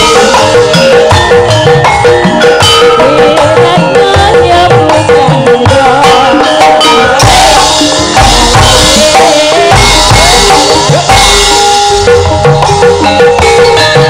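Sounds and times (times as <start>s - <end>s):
drums: 0.0s - 14.0s
gamelan accompaniment: 0.0s - 14.0s
woman singing into a microphone: 2.7s - 11.1s.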